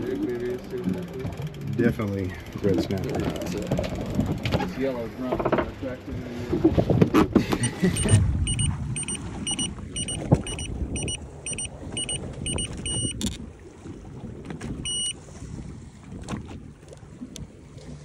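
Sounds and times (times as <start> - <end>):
electronic warning beeps: 7.6 - 13.2, 14.8 - 15.2.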